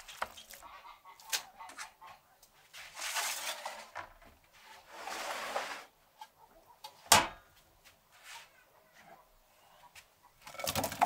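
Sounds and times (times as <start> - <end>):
rubbing and scraping in metal pot: 2.8 - 5.9.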